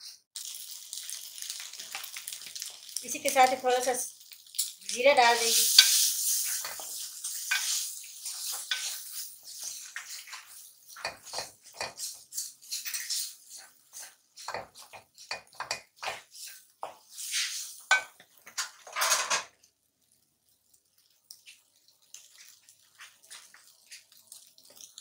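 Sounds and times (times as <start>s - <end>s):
chicken frying: 0.0s - 25.0s
wooden spatula scraping metal pan: 5.4s - 19.4s.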